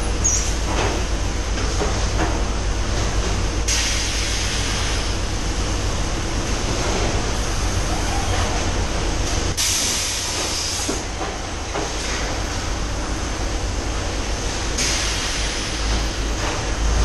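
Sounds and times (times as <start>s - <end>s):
low machinery hum: 0.0s - 17.0s
sharp hiss: 14.8s - 15.9s.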